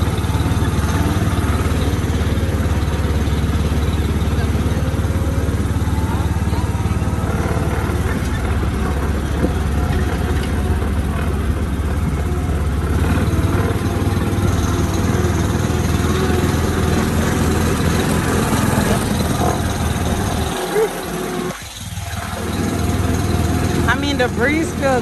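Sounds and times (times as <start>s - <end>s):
motor running: 0.0s - 25.0s.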